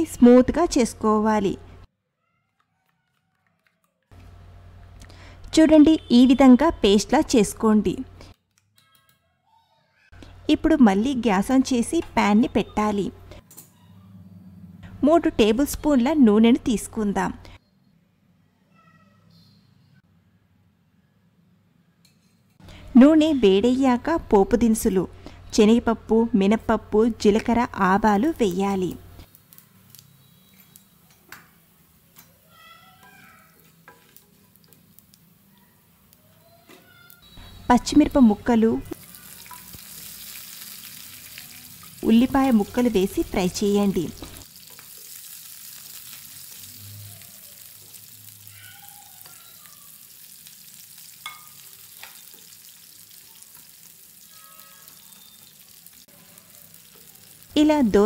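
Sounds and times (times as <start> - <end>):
spices sizzling in hot oil: 27.2 - 32.8, 33.4 - 58.0
faint high pitched sounds: 46.7 - 50.1, 54.2 - 57.4.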